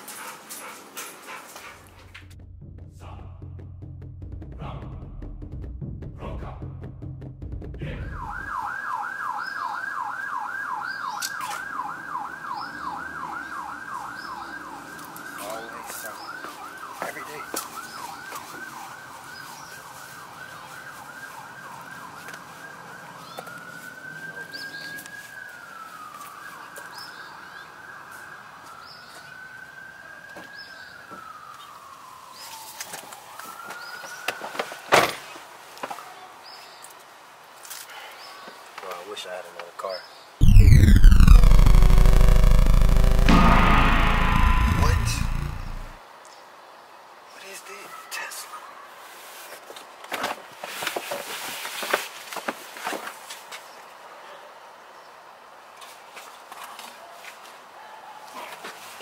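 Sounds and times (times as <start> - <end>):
emergency siren yelping and wailing: 7.8 - 26.8, 40.4 - 46.0.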